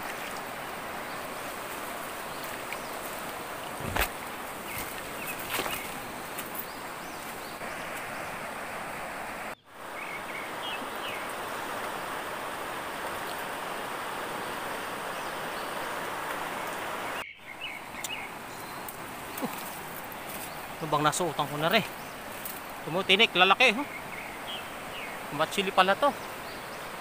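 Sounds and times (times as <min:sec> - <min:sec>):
river rapids rushing: 0:00.0 - 0:17.2
bird chirps: 0:17.1 - 0:20.7.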